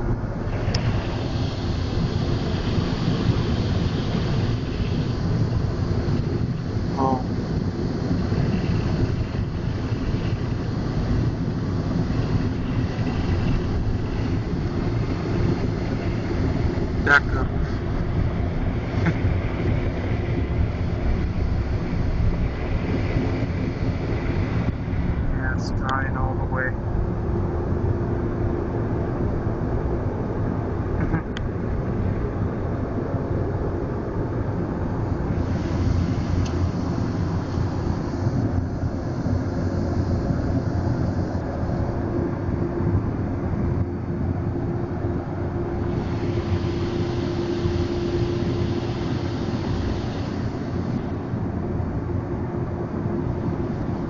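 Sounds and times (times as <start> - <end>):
car wash rushing noise: 0.0 - 54.0
air dryer blowers rushing: 45.8 - 51.4.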